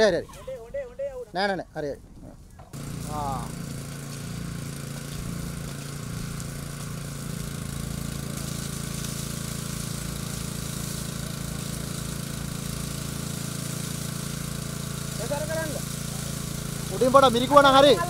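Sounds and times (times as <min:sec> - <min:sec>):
engine humming: 0:02.6 - 0:10.6
water spray splashing: 0:02.7 - 0:18.0.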